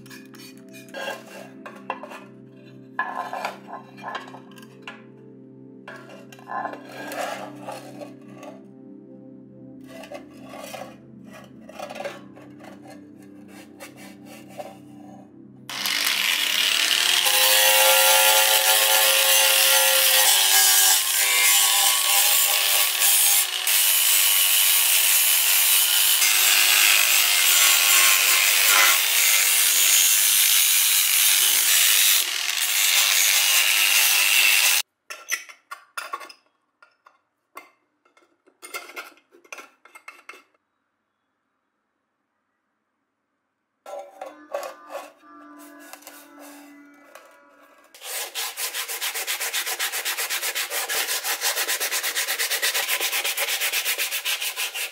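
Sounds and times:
angle grinder sanding metal: 0:15.7 - 0:34.8, 0:44.2 - 0:54.9.

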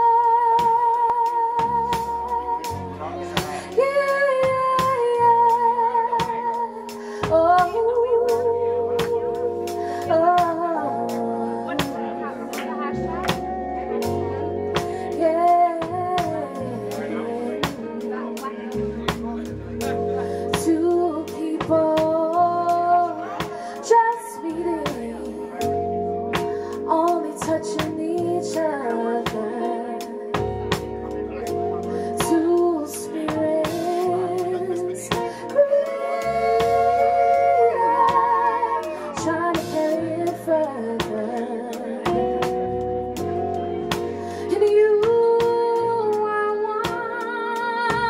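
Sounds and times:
woman singing with vibrato: 0:00.0 - 0:12.9, 0:20.4 - 0:25.6, 0:26.8 - 0:30.2, 0:32.1 - 0:42.4, 0:44.3 - 0:48.0
bass notes: 0:00.0 - 0:48.0
live band playing: 0:00.0 - 0:48.0
steady drum beat: 0:00.6 - 0:10.8, 0:13.1 - 0:16.7
woman singing long notes: 0:32.1 - 0:42.5.

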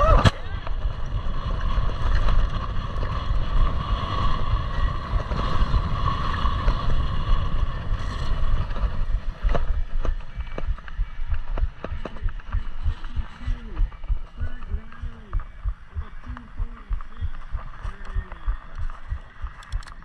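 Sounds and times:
wind rushing over microphone: 0:00.0 - 0:20.0
steady high hum: 0:02.7 - 0:20.0
sharp clicks: 0:09.4 - 0:20.0.

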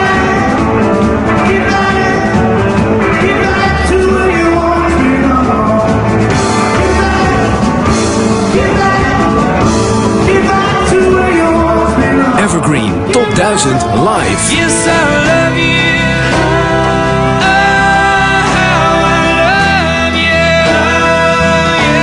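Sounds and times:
rock music with singing: 0:00.0 - 0:22.0.

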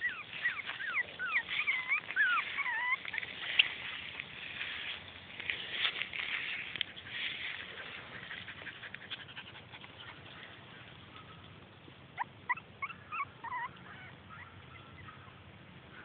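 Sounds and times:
puppies yipping: 0:00.0 - 0:05.0, 0:12.2 - 0:15.4.

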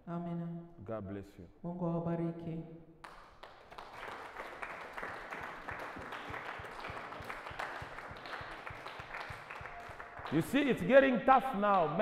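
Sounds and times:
congregation applauding: 0:03.0 - 0:11.1.

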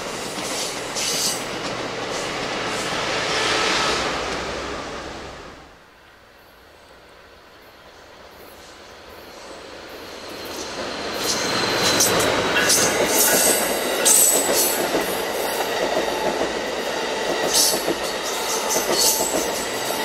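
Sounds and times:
train cars rumbling: 0:00.0 - 0:05.8, 0:09.4 - 0:20.0
passenger train passing: 0:00.0 - 0:20.0
high wheel squeals: 0:10.0 - 0:14.5.

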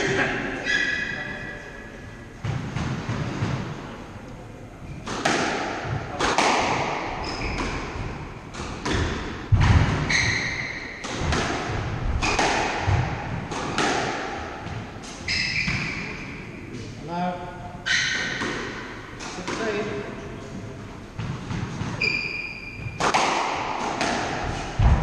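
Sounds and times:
squash ball hits: 0:05.0 - 0:16.1, 0:21.2 - 0:25.0
shoes squeaking on wooden floor: 0:10.1 - 0:10.8, 0:15.2 - 0:16.1, 0:21.9 - 0:23.0.

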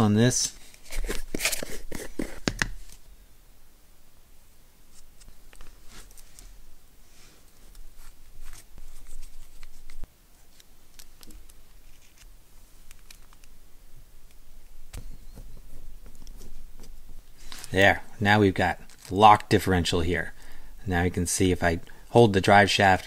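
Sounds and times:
small parts clicking and scraping: 0:07.4 - 0:13.6, 0:17.4 - 0:17.8, 0:18.7 - 0:19.6.

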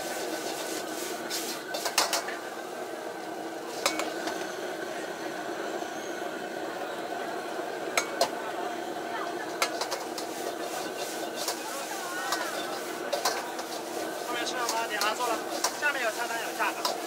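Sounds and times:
burner and frying hiss: 0:00.0 - 0:17.0
metal ladle clanking on wok: 0:03.8 - 0:04.2, 0:12.3 - 0:13.8.

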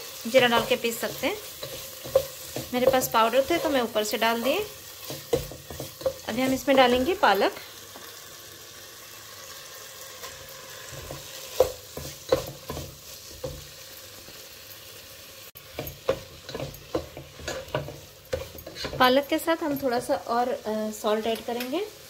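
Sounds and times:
paste sizzling in a pan: 0:00.0 - 0:22.0
spatula knocking and scraping pan: 0:00.3 - 0:07.4, 0:10.2 - 0:13.8, 0:15.6 - 0:20.1.

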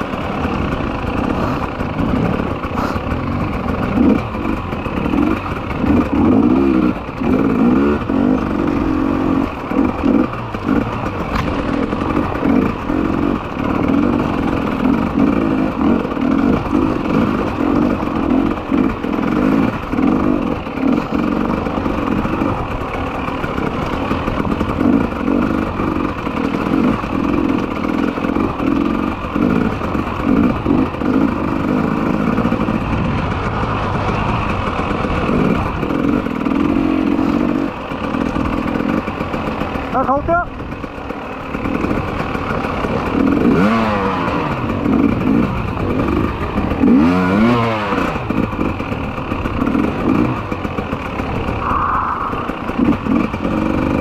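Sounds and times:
motorcycle engine revving: 0:00.0 - 0:54.0.

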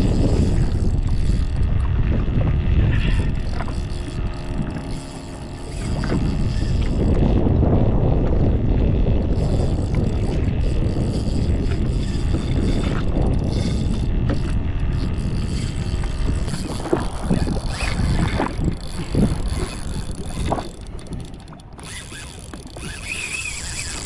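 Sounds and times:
wind rumble on microphone: 0:00.0 - 0:24.0
fishing reel knocks and rattles: 0:03.0 - 0:07.1, 0:09.2 - 0:24.0.

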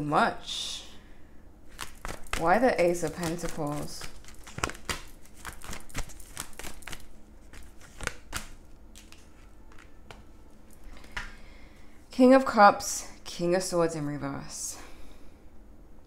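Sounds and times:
cards clicking and snapping: 0:01.7 - 0:10.3.

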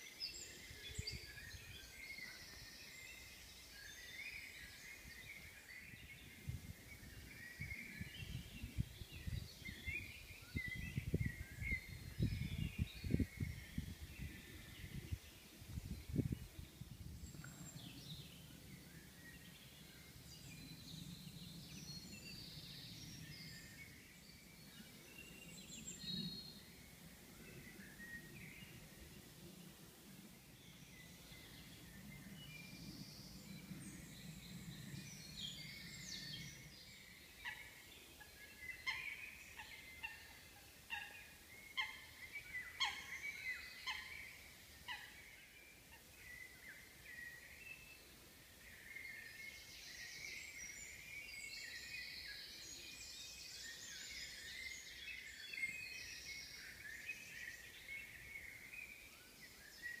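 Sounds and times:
birds chirping and trilling: 0:00.0 - 1:00.0
sharp bird calls: 0:38.6 - 0:45.2.

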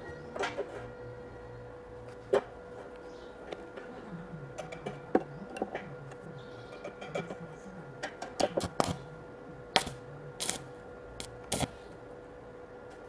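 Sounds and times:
welding arc crackling: 0:08.4 - 0:09.1, 0:09.8 - 0:11.8.

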